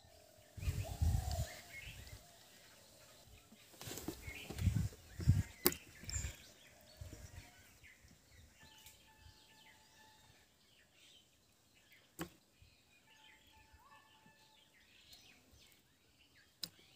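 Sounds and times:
faint bird calls: 0:00.0 - 0:07.8.

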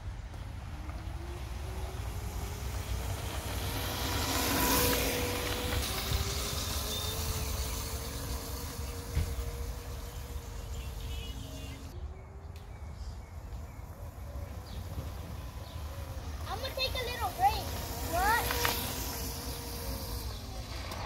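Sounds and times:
tyres on gravel: 0:00.2 - 0:12.0, 0:14.0 - 0:21.0
electric motor whining: 0:00.7 - 0:12.0, 0:13.8 - 0:21.0.

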